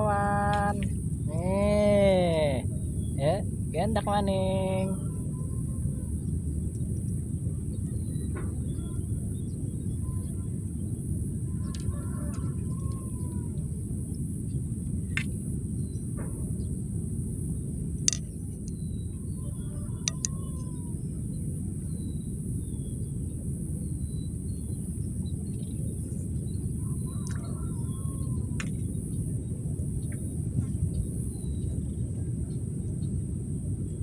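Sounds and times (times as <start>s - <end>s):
low outdoor rumble: 0.0s - 34.0s.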